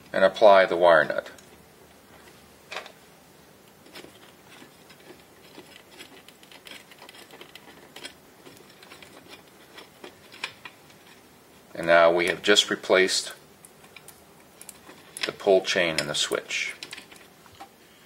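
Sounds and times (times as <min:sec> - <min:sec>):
small clicks and rustling: 0:03.6 - 0:11.3, 0:13.3 - 0:17.8.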